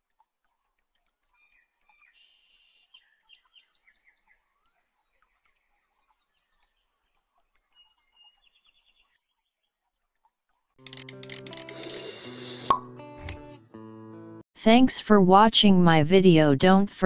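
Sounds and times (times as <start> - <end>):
faint bird chirps and trills: 1.3 - 9.6.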